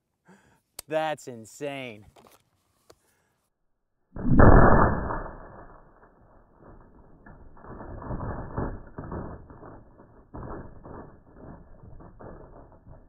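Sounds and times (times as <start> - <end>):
rough fluctuating rumble: 4.2 - 13.0
slowed rifle shot boom: 4.2 - 13.0.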